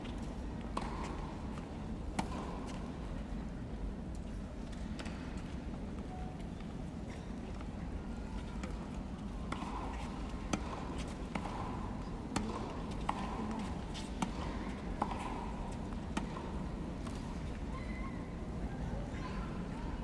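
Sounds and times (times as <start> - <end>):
tennis balls struck and bouncing: 0.7 - 2.8, 9.5 - 17.4.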